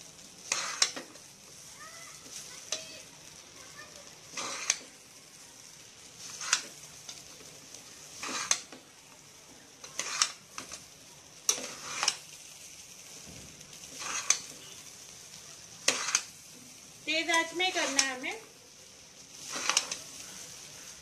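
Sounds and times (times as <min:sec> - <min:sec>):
faint steady sizzle: 0:00.0 - 0:21.0
metal spatula scraping steel pot: 0:00.4 - 0:01.1, 0:04.3 - 0:04.9, 0:08.2 - 0:08.8, 0:09.8 - 0:10.7, 0:11.5 - 0:12.2, 0:13.9 - 0:14.8, 0:15.8 - 0:16.3, 0:19.4 - 0:20.1.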